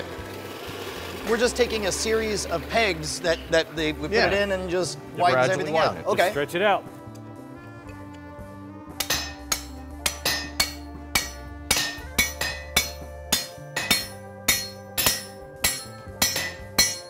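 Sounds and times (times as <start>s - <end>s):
hammer striking steel on anvil: 8.9s - 17.0s.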